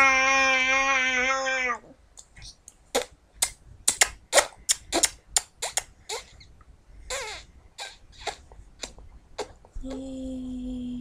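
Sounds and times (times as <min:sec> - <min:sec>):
lip smacks: 0:02.2 - 0:09.8.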